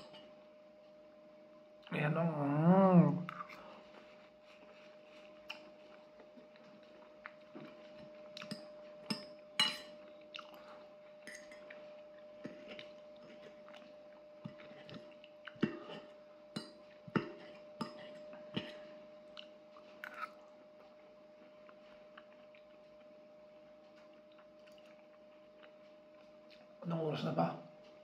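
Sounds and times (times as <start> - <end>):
faint steady hum: 0.0 - 28.0
chewing and mouth sounds: 3.3 - 8.8, 10.1 - 10.8, 11.4 - 16.1, 17.0 - 23.2, 23.8 - 26.7.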